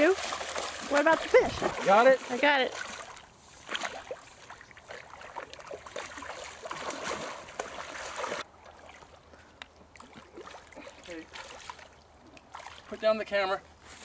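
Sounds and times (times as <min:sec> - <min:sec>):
water splashing off a net: 0:00.0 - 0:09.2.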